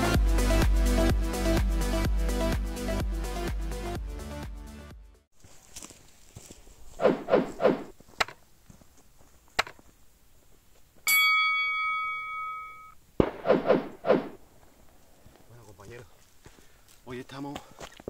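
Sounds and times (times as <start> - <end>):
quick pops: 7.0 - 8.4, 13.2 - 14.4
bell ding: 11.1 - 13.0.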